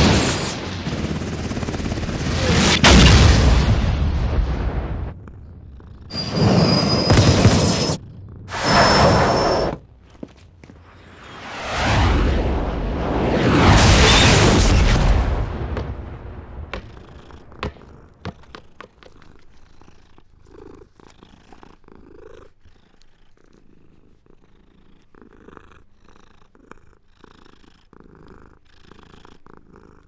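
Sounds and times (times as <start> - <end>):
explosion: 2.2 - 5.2, 6.1 - 9.7, 10.9 - 17.4
cat purring: 4.6 - 6.8, 7.8 - 8.7, 15.8 - 30.0
sharp cracks: 13.6 - 19.2.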